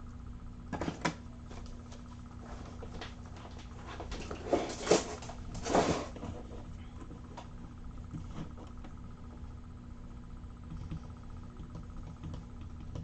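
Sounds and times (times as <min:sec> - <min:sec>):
faint steady hum: 0:00.0 - 0:13.0
small items rustling and clattering: 0:02.5 - 0:06.7.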